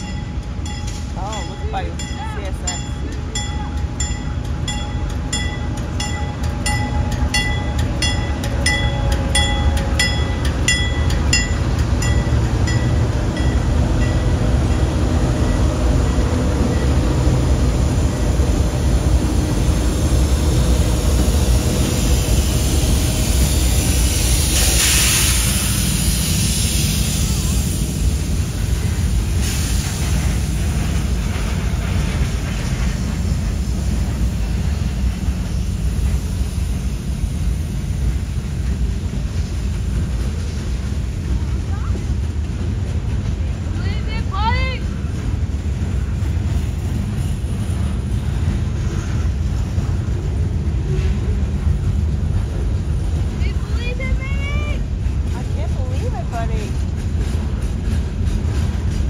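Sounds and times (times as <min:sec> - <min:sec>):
train bell ringing: 0:00.0 - 0:17.3
freight train rumbling past: 0:00.0 - 0:59.0
air hiss: 0:21.5 - 0:34.9.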